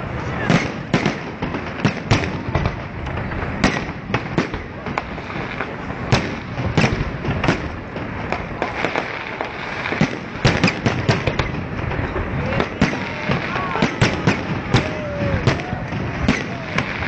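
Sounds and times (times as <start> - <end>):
fireworks bangs: 0.0 - 17.0
continuous din: 10.0 - 17.0.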